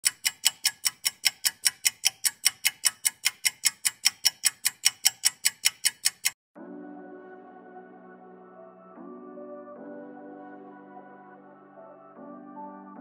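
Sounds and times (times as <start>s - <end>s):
fast clock-like ticking: 0.0s - 6.4s.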